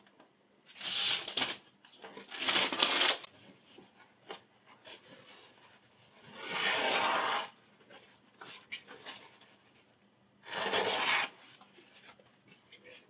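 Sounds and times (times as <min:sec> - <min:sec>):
paper rustling: 0:00.7 - 0:06.9.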